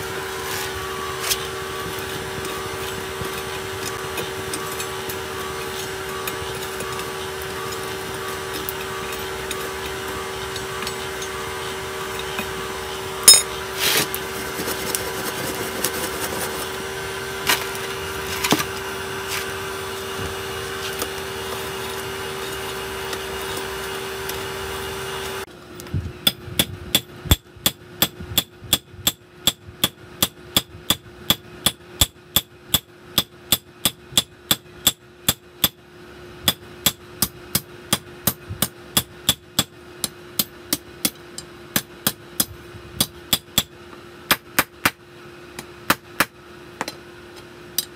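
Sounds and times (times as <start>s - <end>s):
forge blower hum: 0.0s - 47.9s
hammer ringing on iron: 13.2s - 13.6s
iron tongs clinking: 13.3s - 13.6s.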